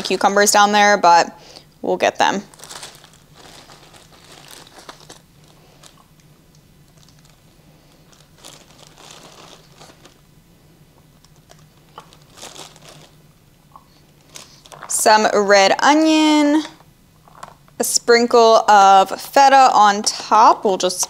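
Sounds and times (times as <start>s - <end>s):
plastic bag crinkling: 2.4s - 10.2s, 11.2s - 13.2s, 13.8s - 15.0s.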